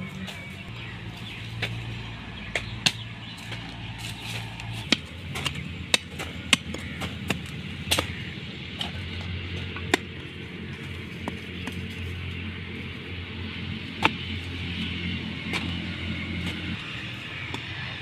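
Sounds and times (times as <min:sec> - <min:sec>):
blade chopping woody stems: 0:01.5 - 0:12.0, 0:13.8 - 0:18.0.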